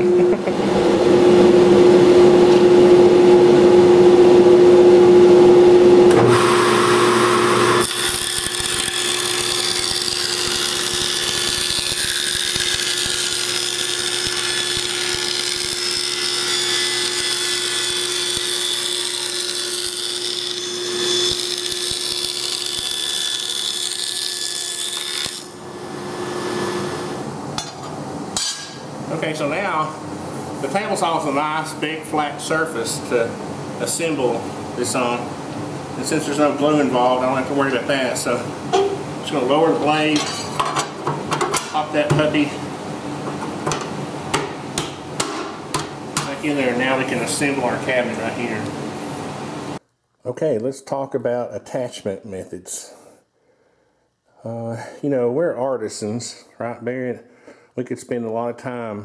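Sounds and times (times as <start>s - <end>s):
dust collector running: 0.0s - 27.5s
table saw cutting plywood: 5.2s - 27.3s.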